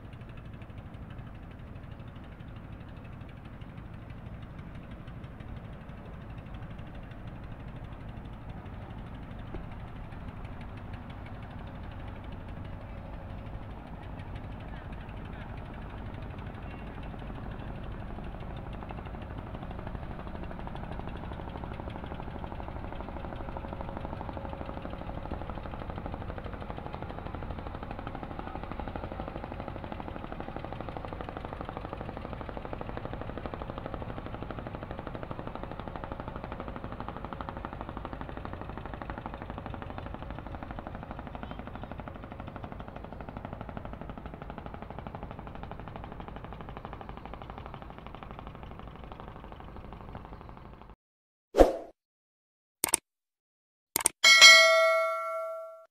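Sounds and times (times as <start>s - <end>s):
boat engine chugging: 0.0s - 50.9s.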